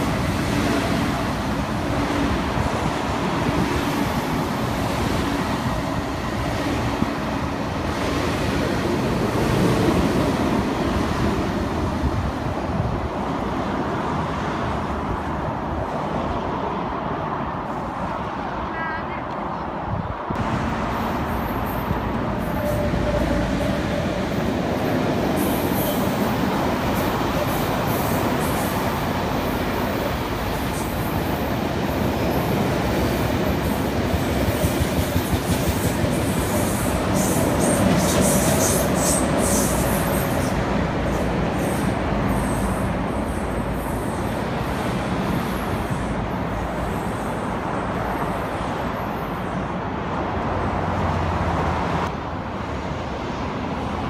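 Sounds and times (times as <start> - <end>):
train wheels rumbling on rail: 0.0 - 18.6, 19.3 - 54.0
wheels clickety-clack: 33.3 - 40.6.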